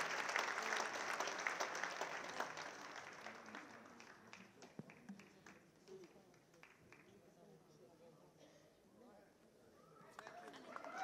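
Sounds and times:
audience applause: 0:00.0 - 0:05.6, 0:10.1 - 0:11.0.

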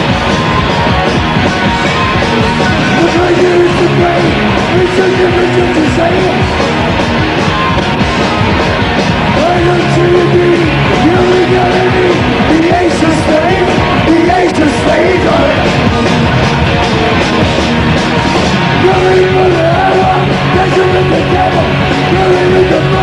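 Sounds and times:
distorted bass and guitar: 0:00.0 - 0:23.0
drums: 0:00.0 - 0:23.0
man singing lead vocal: 0:02.8 - 0:06.6, 0:09.3 - 0:15.9, 0:18.7 - 0:23.0.

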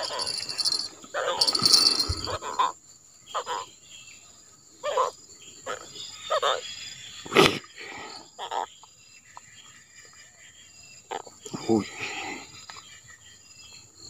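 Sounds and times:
catfish croaking: 0:00.0 - 0:02.7
insects droning: 0:00.0 - 0:14.0.

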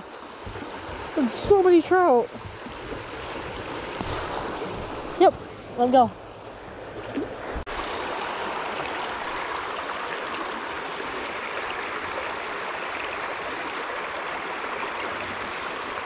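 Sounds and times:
stream water rushing: 0:00.0 - 0:16.0.

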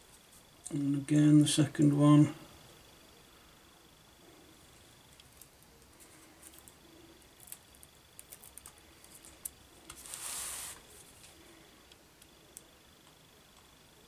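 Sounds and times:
cutting mat sliding rustle: 0:09.9 - 0:11.1.

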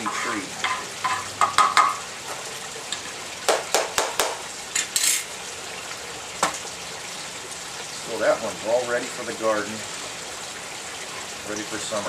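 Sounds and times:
steady hiss: 0:00.0 - 0:00.6
tool scraping pot: 0:00.0 - 0:01.3
tool clinking on ceramic pot: 0:00.0 - 0:02.0, 0:04.8 - 0:05.3
knock: 0:03.5 - 0:04.4.

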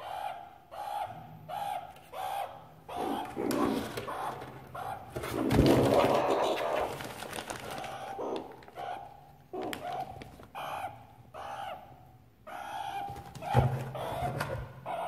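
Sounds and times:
meerkats calling: 0:00.0 - 0:15.0
plastic bags rustling: 0:05.2 - 0:08.8.

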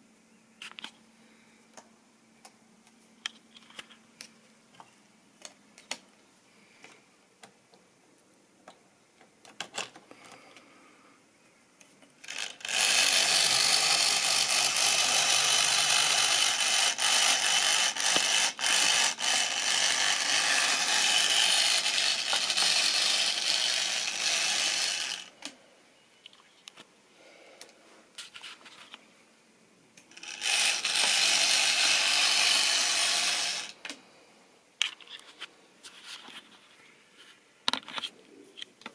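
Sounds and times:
toy train motor whirring: 0:12.2 - 0:25.5, 0:30.0 - 0:34.0.

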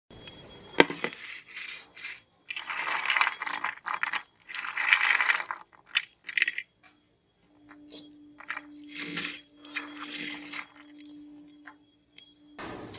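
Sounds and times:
snack pieces rattling on plate: 0:00.8 - 0:07.0, 0:07.7 - 0:11.8.

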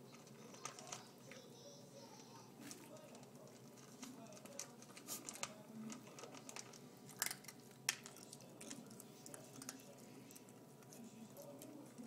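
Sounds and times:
puppy crunching kibble in metal bowl: 0:02.6 - 0:12.0.

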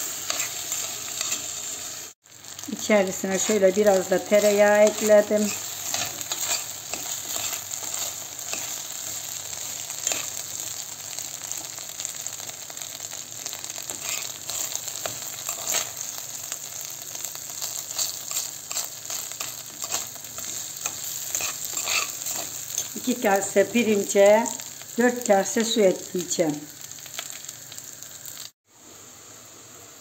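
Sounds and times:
rice sizzling in butter: 0:00.0 - 0:30.0
metal spoon scraping a pot: 0:04.8 - 0:08.8, 0:13.9 - 0:15.9, 0:17.9 - 0:22.9.

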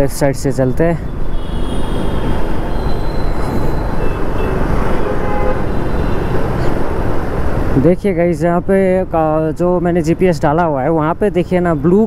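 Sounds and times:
motorcycle engine and road noise: 0:00.0 - 0:10.3
surrounding traffic: 0:00.0 - 0:12.0.

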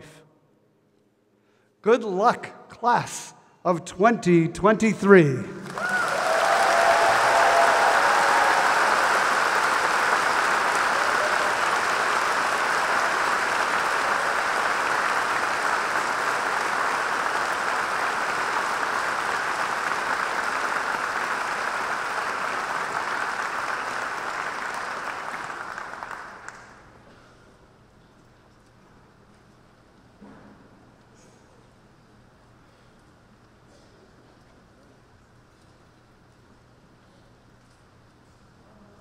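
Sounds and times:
audience applauding: 0:05.6 - 0:26.9.

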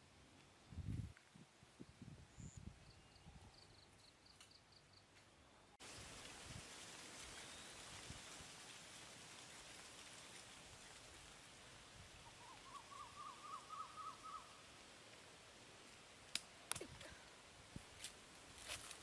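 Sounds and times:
faint steady hiss: 0:00.0 - 0:19.0
bird calling repeated notes: 0:12.3 - 0:14.6.

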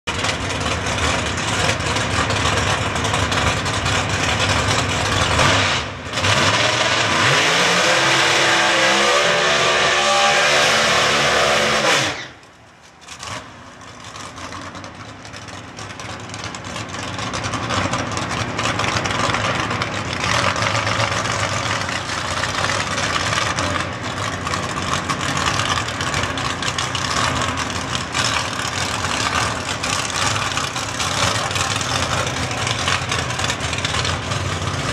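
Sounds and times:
racing car engine revving: 0:03.1 - 0:12.4.

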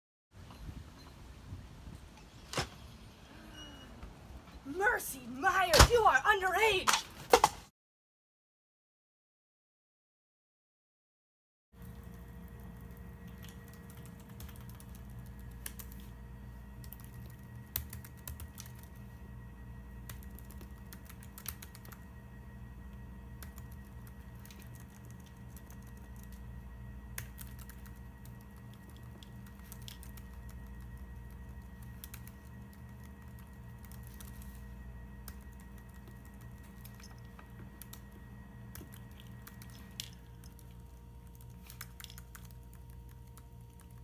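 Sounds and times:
low hum: 0:11.8 - 0:44.0
laptop keyboard typing: 0:11.9 - 0:16.1, 0:16.8 - 0:19.1, 0:20.0 - 0:22.0, 0:23.3 - 0:44.0.

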